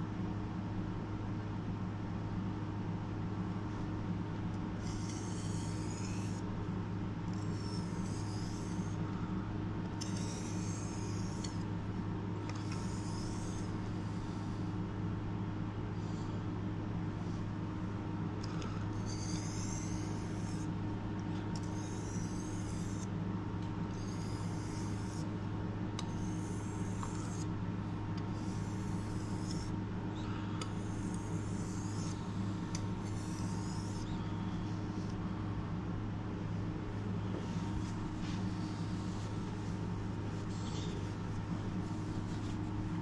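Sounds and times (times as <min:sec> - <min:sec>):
steady low hum: 0:00.0 - 0:43.0
knife scraping on whetstone: 0:04.8 - 0:06.4, 0:07.4 - 0:09.0, 0:10.0 - 0:11.6, 0:12.5 - 0:13.8, 0:19.0 - 0:20.7, 0:21.6 - 0:23.1, 0:24.0 - 0:25.3, 0:26.0 - 0:27.5, 0:28.3 - 0:29.7, 0:30.6 - 0:34.2.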